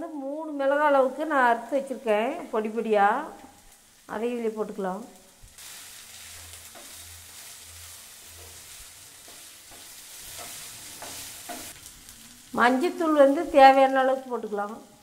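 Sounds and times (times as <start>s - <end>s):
vegetables sizzling in oil: 0.1s - 15.0s
wooden spatula scraping pan: 6.0s - 11.8s.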